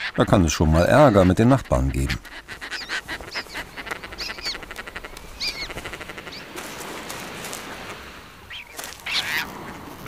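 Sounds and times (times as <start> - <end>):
harsh tern calls: 0.0 - 6.7, 8.5 - 9.5
wing-flapping rustle: 2.2 - 10.0.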